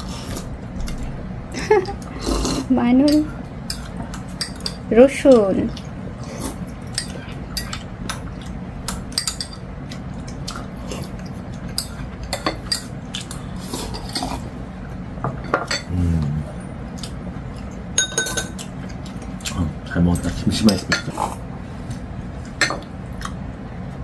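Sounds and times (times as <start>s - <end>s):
utensils clinking on ceramic bowls: 3.0s - 5.6s, 8.9s - 9.6s, 11.7s - 13.3s, 18.0s - 18.7s, 20.1s - 21.2s, 22.6s - 22.8s
low voice humming: 15.9s - 16.6s.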